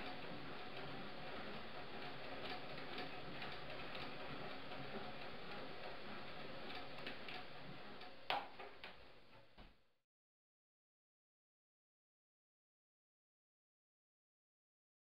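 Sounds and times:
mechanism ticking: 0:00.0 - 0:09.0.

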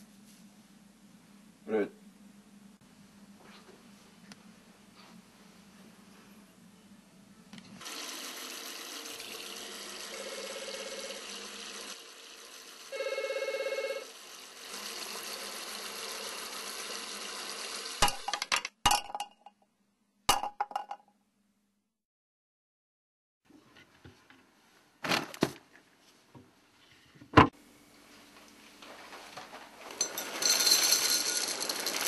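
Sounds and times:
telephone ringing: 0:10.2 - 0:11.2, 0:12.9 - 0:14.1.

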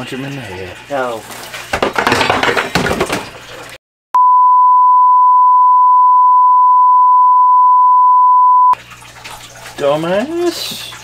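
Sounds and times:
steady test tone beep: 0:04.2 - 0:08.8.

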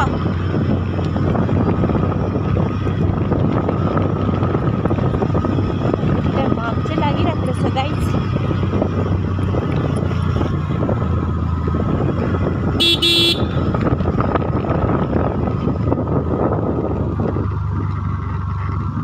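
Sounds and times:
vehicle engine and road noise: 0:00.0 - 0:19.0
short horn toot: 0:12.8 - 0:13.6.

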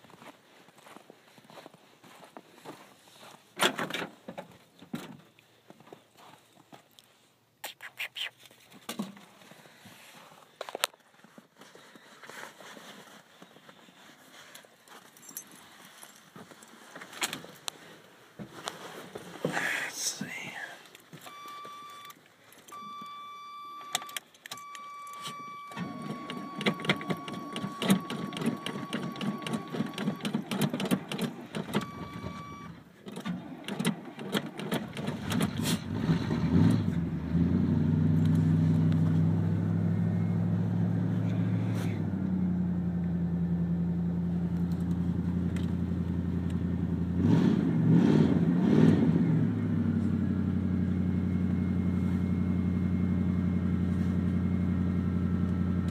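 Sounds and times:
ignition key buzzer: 0:21.3 - 0:32.8
starter cranking engine: 0:24.4 - 0:36.9.

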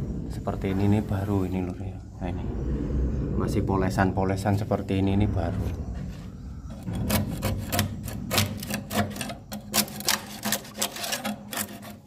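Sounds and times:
metal chisel scraping wood: 0:06.7 - 0:12.0.

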